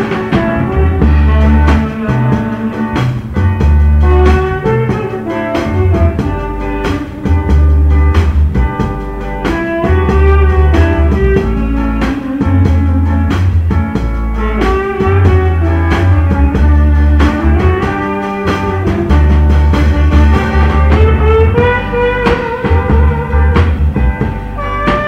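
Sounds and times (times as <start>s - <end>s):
dance music with heavy bass: 16.1s - 25.0s.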